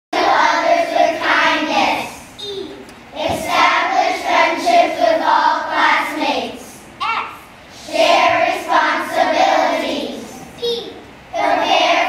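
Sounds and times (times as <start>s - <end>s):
children singing in unison: 0.2s - 2.2s, 3.2s - 6.6s, 7.8s - 10.4s, 11.4s - 12.0s.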